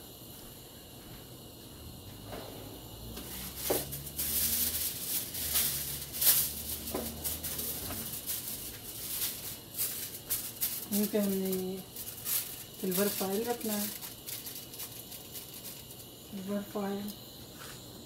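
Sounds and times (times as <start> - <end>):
aluminium foil crinkling: 3.2 - 17.2.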